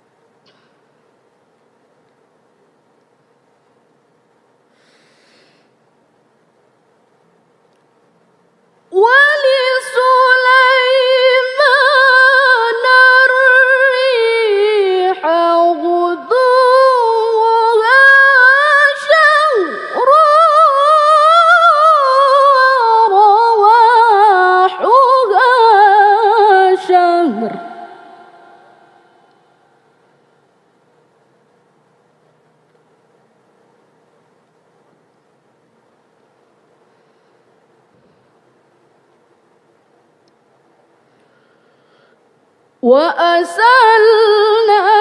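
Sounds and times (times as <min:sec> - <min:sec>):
woman reciting melodically: 0:08.9 - 0:29.3, 0:42.8 - 0:45.0.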